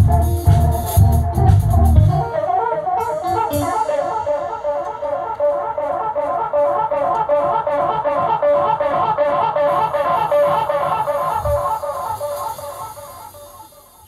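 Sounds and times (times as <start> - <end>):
drums and bass: 0.0 - 2.2.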